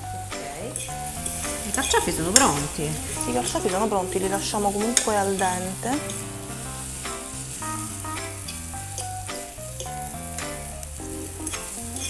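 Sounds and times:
background music with bass: 0.0s - 12.0s
vegetables sizzling in a pan: 0.0s - 12.0s.

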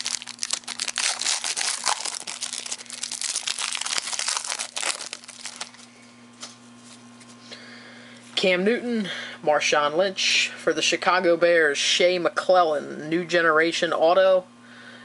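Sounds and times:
foil pack crinkling: 0.0s - 5.9s.

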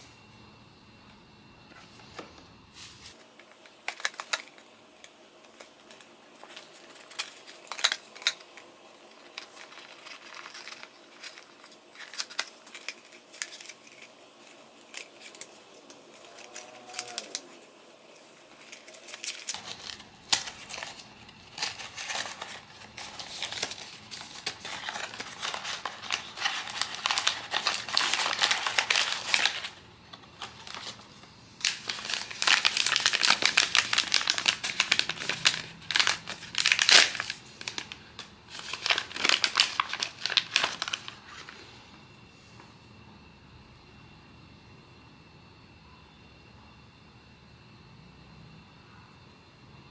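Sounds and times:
packaging rustling and crinkling: 2.8s - 41.6s.

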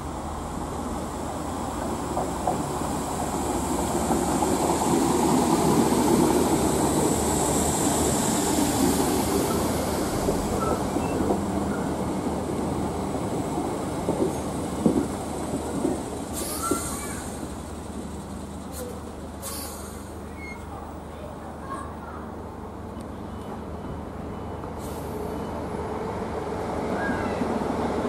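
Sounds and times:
train wheels rumbling on rail: 0.0s - 21.2s.

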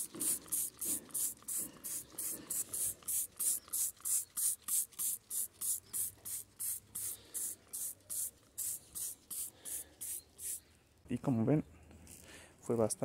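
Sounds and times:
spray bottle hissing: 0.0s - 10.7s.

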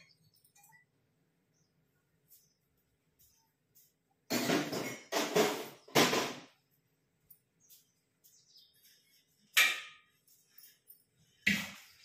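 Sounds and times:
utensils clattering: 4.3s - 6.6s.

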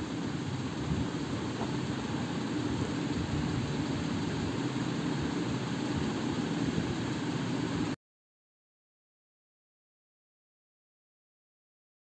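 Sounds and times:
low mechanical drone: 0.0s - 8.0s.

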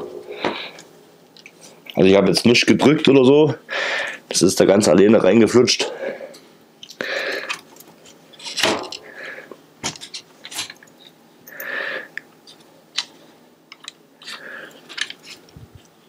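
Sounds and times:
bicycle parts clicking and knocking: 13.7s - 15.3s.

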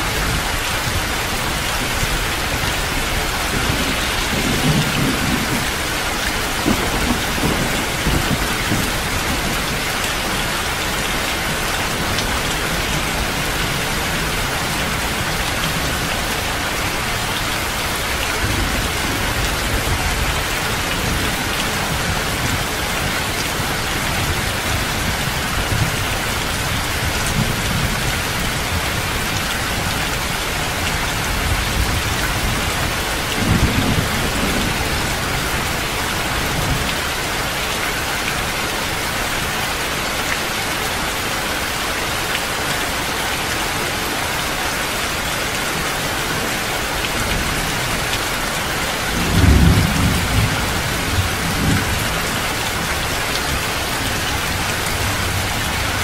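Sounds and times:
heavy rain: 0.0s - 56.0s
thunder rolling: 3.4s - 9.5s.

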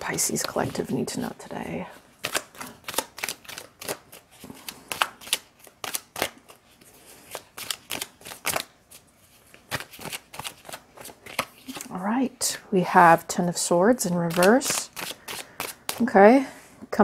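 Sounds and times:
cards shuffled by hand: 2.2s - 11.9s, 14.2s - 16.1s.

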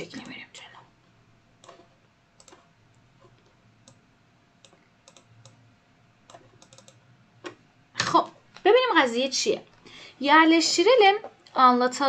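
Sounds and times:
computer mouse clicks: 0.2s - 0.4s, 1.6s - 4.0s, 4.6s - 5.6s, 6.2s - 7.6s.

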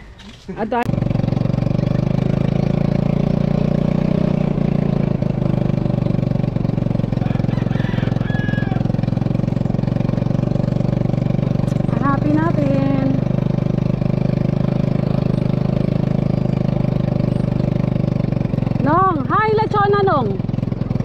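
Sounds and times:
small engine running: 0.2s - 21.0s.

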